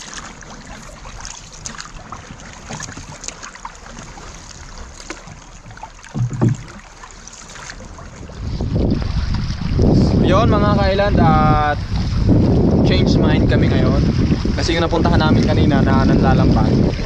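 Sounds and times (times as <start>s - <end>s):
water lapping against boat hull: 0.0s - 17.0s
low thud: 6.0s - 6.9s.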